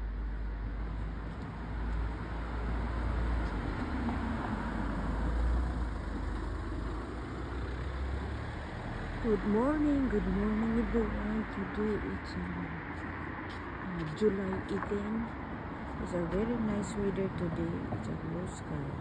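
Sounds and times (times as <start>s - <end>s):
road traffic rumble: 0.0s - 19.0s.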